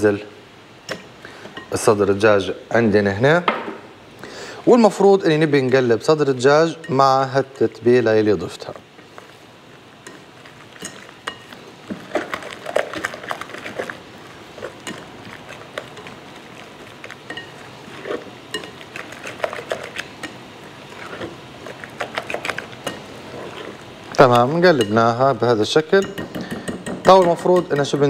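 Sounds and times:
whisk clinking against glass bowl: 17.0 - 20.4, 24.7 - 25.1, 26.0 - 28.0.

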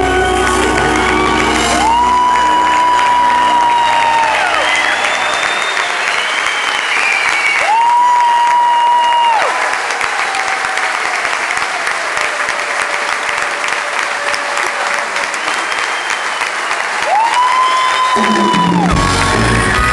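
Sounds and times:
band playing: 0.0 - 6.1, 18.2 - 19.9
audience applauding: 0.0 - 19.9.

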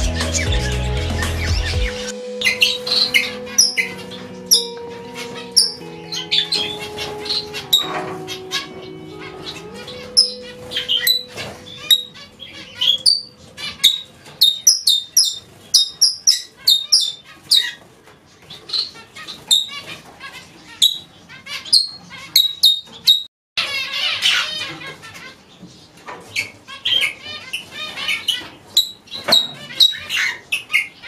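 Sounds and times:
soft background music: 0.0 - 14.9
parakeets and finches chirping: 0.0 - 31.0.

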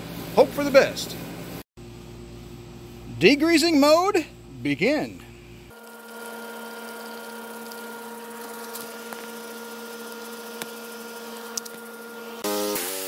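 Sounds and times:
air conditioner humming: 0.0 - 5.8.

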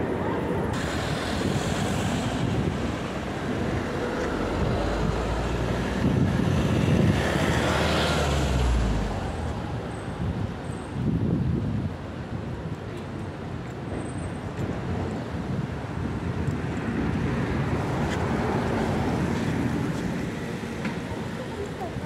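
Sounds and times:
street traffic: 0.0 - 22.0
heavy vehicle rumbling past: 0.7 - 10.4.

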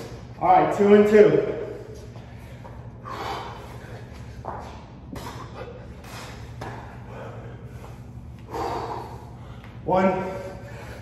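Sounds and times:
steady low hum: 0.0 - 11.0
man breathing hard: 1.8 - 11.0.

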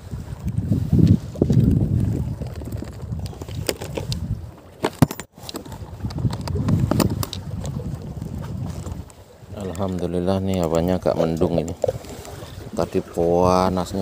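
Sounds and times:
wind buffeting microphone: 0.0 - 4.8, 5.6 - 14.0.

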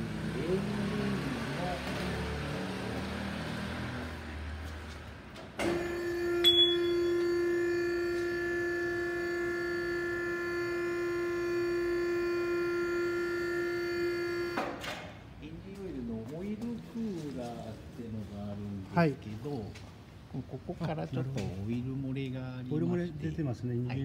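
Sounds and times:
electric pump motor humming: 5.9 - 14.7.

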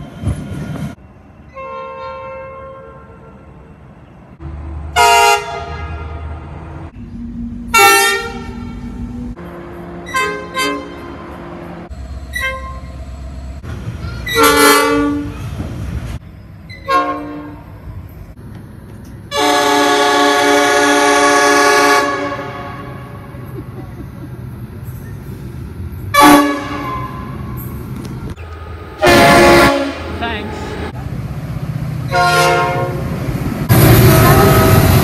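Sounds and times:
low engine and rail rumble: 0.0 - 35.0
diesel locomotive horn blasts: 1.5 - 3.7, 4.9 - 6.6, 7.4 - 11.4, 12.3 - 12.9, 14.2 - 15.5, 16.8 - 17.7, 19.3 - 23.4, 26.1 - 27.5, 29.0 - 30.6, 32.1 - 33.1, 33.8 - 35.0.

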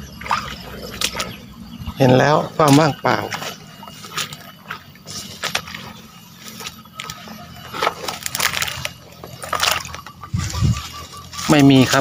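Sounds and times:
shallow water sloshing: 0.0 - 11.5
dry grass rustling and snapping: 2.6 - 12.0.

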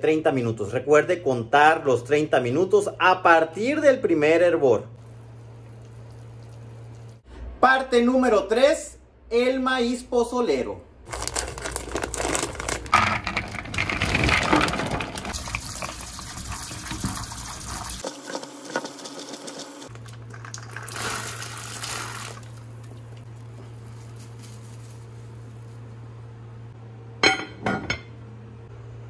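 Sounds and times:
low steady hum: 4.8 - 7.6, 19.9 - 29.0
tap water running: 5.0 - 7.2, 13.3 - 23.3
plastic bag crinkling: 11.1 - 15.4, 19.9 - 26.0
kernels rattling: 11.1 - 16.2.

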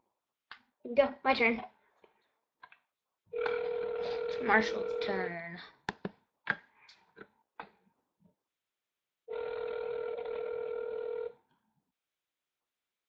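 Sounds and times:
telephone ringback tone: 3.4 - 5.2, 9.3 - 11.4.

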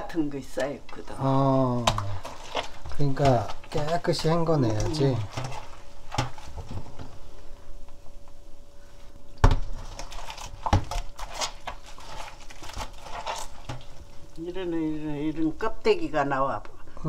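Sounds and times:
seaweed squelching in water: 10.0 - 14.1.

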